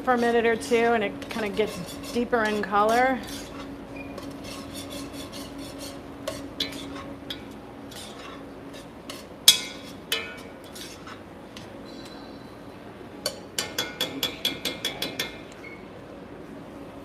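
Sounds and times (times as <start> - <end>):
steady low hum: 0.0 - 17.0
utensil scraping thick sauce in pot: 0.1 - 11.2.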